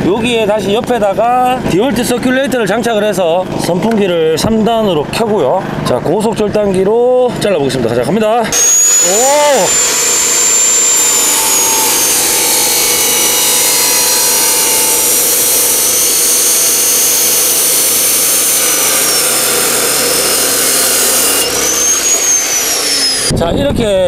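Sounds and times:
cut-off saw grinding metal: 8.5s - 23.4s.

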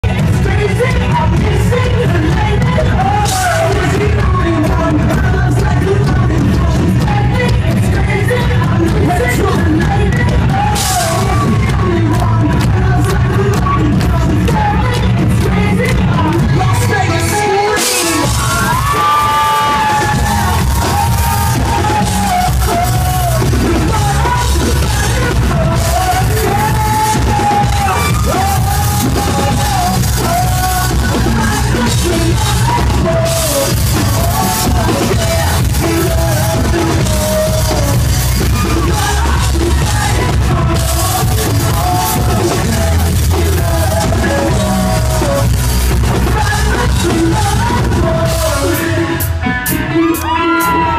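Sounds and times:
bass and drums: 0.0s - 50.9s
electric guitar: 0.0s - 50.9s
lead vocal singing: 0.0s - 50.9s
crowd shouting: 17.2s - 25.2s, 25.8s - 45.4s, 49.7s - 50.9s.

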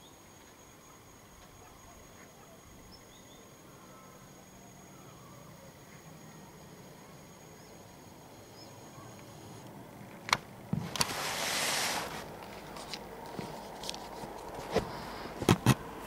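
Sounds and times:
hissing noise: 10.8s - 12.4s.

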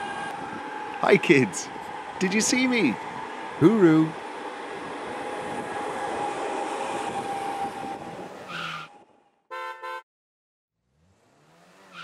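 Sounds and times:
train whooshing past: 0.0s - 8.6s
horn toots: 9.5s - 10.0s.

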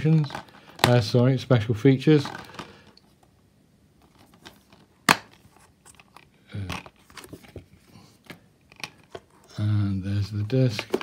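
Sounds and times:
handling of plastic case: 0.0s - 1.2s, 2.0s - 3.4s, 4.0s - 11.0s
plastic case snapping open: 4.2s - 7.3s, 10.7s - 11.0s.

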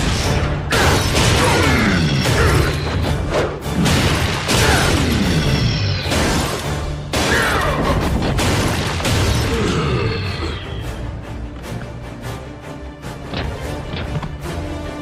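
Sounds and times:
cartoon action music: 0.0s - 11.2s.

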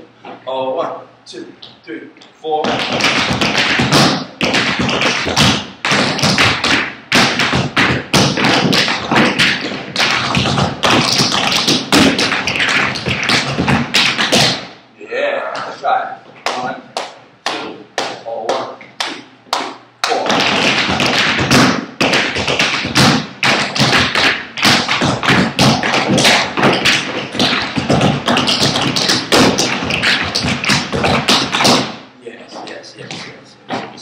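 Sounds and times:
tap shoes on wooden floor: 2.6s - 14.6s, 20.2s - 34.0s.

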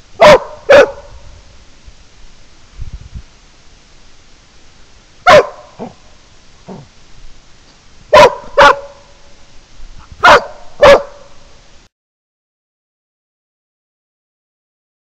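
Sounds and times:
dog barking: 0.2s - 1.2s, 5.3s - 6.0s, 8.1s - 9.1s, 10.2s - 11.4s.

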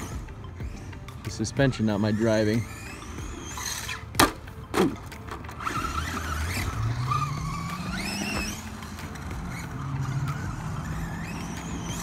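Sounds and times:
rc truck motor whining: 0.0s - 12.0s.

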